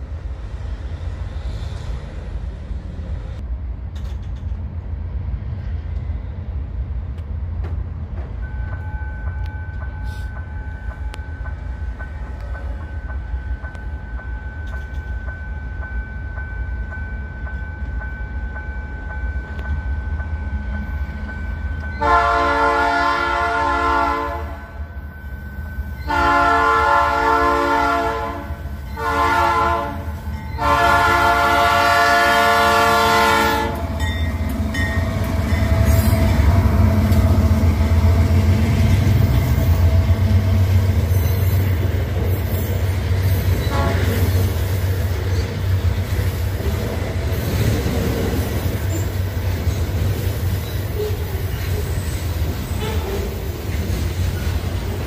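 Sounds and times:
train engines and wagons rumbling: 0.0s - 55.0s
locomotive air horn: 22.0s - 24.8s, 26.1s - 34.0s, 43.6s - 44.3s.

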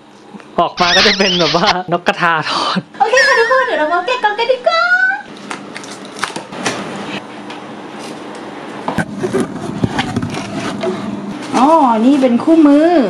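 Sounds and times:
cardboard scraping and rustling: 9.0s - 10.9s.

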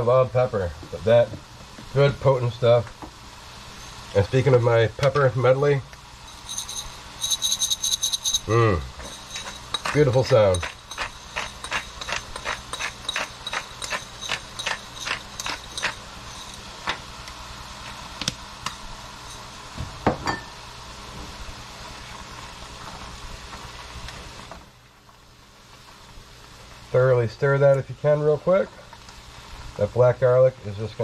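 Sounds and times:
pepper mill ratcheting clicks: 6.4s - 17.0s.

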